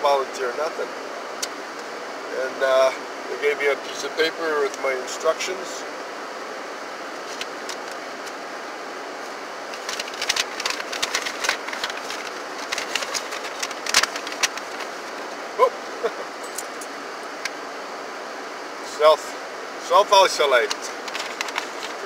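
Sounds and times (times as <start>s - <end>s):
steady hiss inside vehicle: 0.0s - 22.0s
paper crinkling and rustling: 9.7s - 15.3s, 20.6s - 22.0s.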